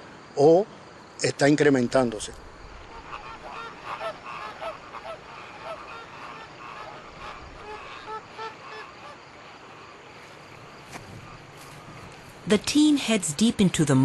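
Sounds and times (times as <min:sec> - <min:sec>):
flock of birds calling: 0:02.7 - 0:12.4.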